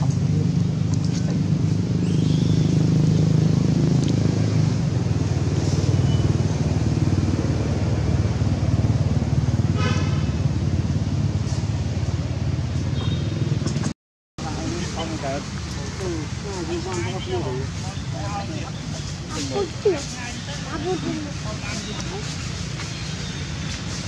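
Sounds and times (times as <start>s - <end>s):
vehicle engine rumbling: 0.0s - 24.0s.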